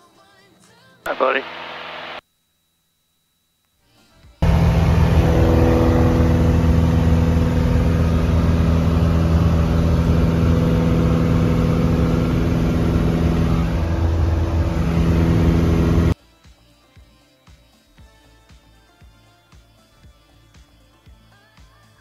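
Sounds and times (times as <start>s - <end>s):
airplane engine droning in cabin: 4.4s - 16.2s.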